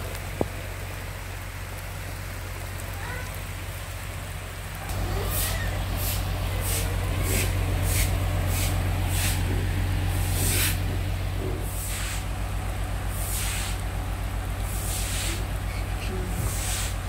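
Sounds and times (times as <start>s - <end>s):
heavy rain: 0.0s - 17.0s
low rumble: 0.0s - 17.0s
short hissing swishes: 5.3s - 9.5s, 10.3s - 10.8s, 11.7s - 12.3s, 13.1s - 13.8s, 14.7s - 15.5s, 16.5s - 17.0s.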